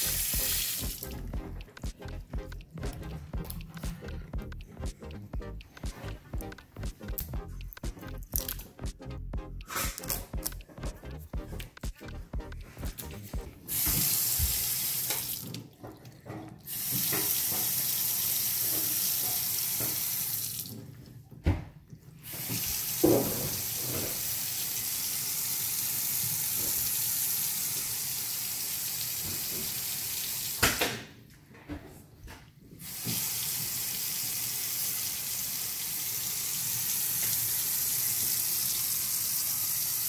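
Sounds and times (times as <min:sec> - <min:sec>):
faucet water running into sink: 0:00.0 - 0:05.2, 0:12.9 - 0:20.8, 0:22.2 - 0:30.7, 0:32.8 - 0:40.0.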